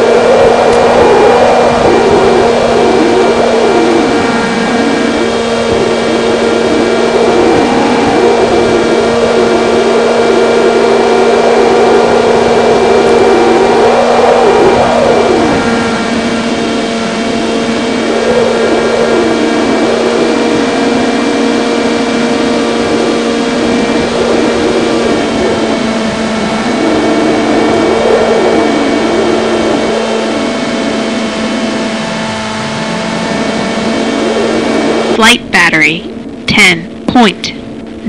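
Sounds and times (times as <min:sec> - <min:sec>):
wind rushing past: 0:00.0 - 0:19.8
electric motor and propeller hum: 0:00.0 - 0:35.2.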